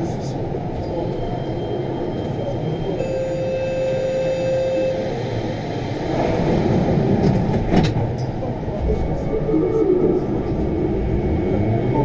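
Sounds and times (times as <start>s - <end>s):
train equipment hum and rumble: 0.0s - 12.0s
steady tone: 8.5s - 12.0s.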